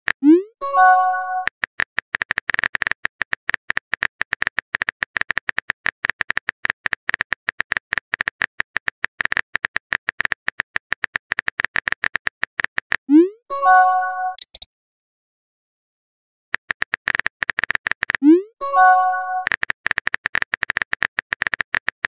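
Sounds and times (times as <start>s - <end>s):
short message chime: 13.5s - 14.4s
phone keyboard typing clicks: 14.3s - 14.6s, 16.6s - 22.0s.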